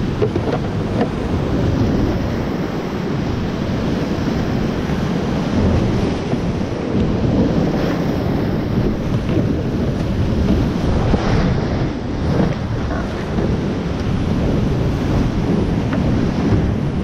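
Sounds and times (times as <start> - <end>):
water splashing over boat: 0.0 - 17.0.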